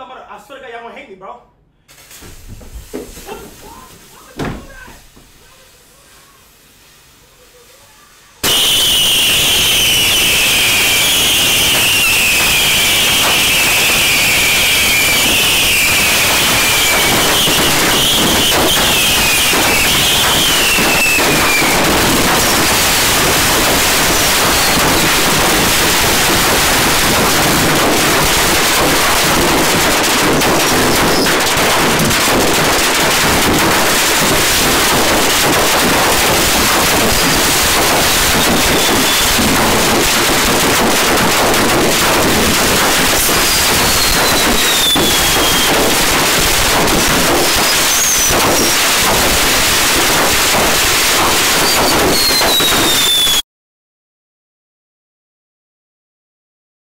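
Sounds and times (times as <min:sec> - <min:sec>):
fireworks rushing hiss: 0:01.9 - 0:53.4
fireworks falling whistles: 0:01.9 - 0:53.5
whistles falling in pitch: 0:08.4 - 0:21.8, 0:24.4 - 0:25.2, 0:38.3 - 0:39.4, 0:43.3 - 0:45.9, 0:47.6 - 0:48.8, 0:51.6 - 0:53.4.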